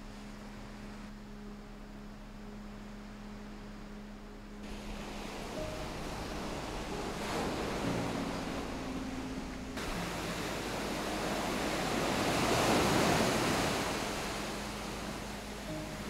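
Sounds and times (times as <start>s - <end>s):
surf breaking on pebble beach: 9.8s - 15.2s.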